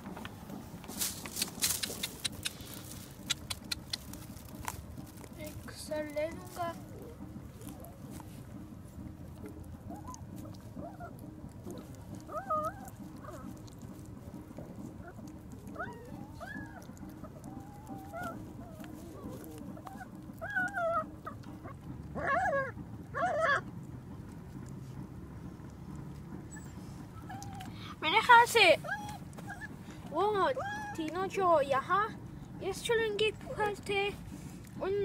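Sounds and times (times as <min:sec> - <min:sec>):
puppies whimpering: 0:06.4 - 0:23.7, 0:26.4 - 0:32.0.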